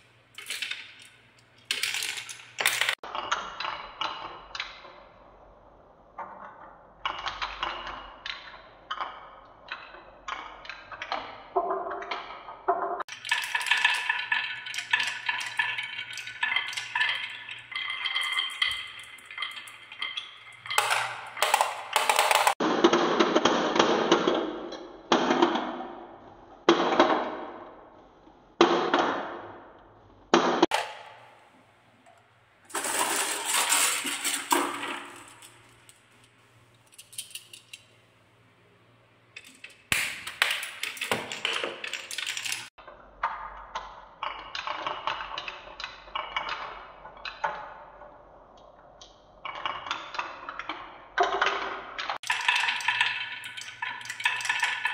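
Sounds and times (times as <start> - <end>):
marbles rolling on wooden rail: 6.2 - 22.6, 32.7 - 36.3, 49.3 - 54.9.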